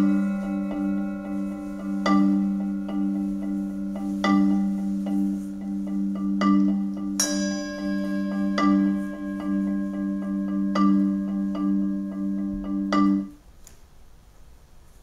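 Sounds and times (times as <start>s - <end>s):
shimmering bell-like strike: 0.0s - 5.0s, 7.2s - 12.1s
low held drone: 0.0s - 13.3s
ringing mallet percussion notes: 0.0s - 13.4s.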